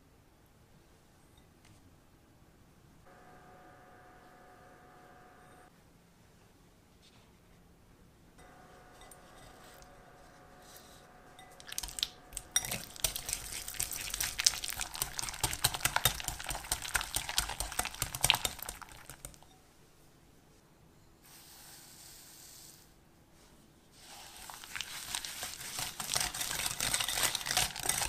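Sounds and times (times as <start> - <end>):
faint handling sounds: 6.3 - 7.8, 23.3 - 28.0
whisk clicking against bowl: 11.4 - 19.6, 24.5 - 28.0.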